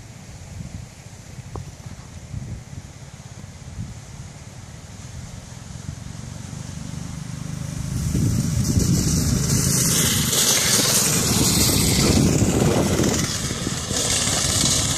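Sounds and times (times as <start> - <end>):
go-kart engine passing: 5.4 - 14.9.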